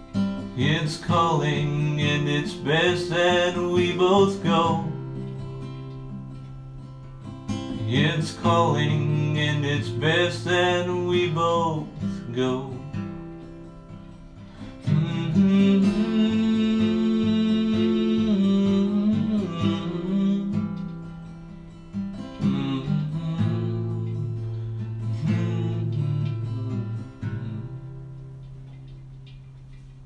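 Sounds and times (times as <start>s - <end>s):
acoustic guitar strumming: 0.0s - 30.0s.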